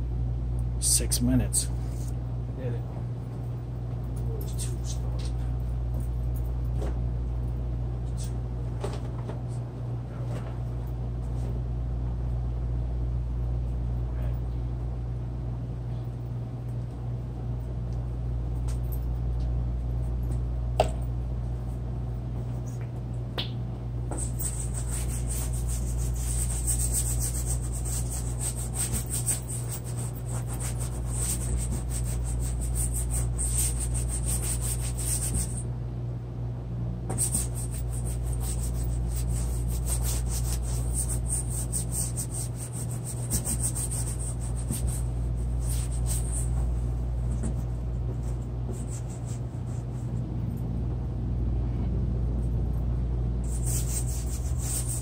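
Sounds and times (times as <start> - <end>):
low hum: 9.7 - 55.0
drawing tool scratching on paper: 24.1 - 35.6, 37.1 - 46.6, 53.5 - 55.0.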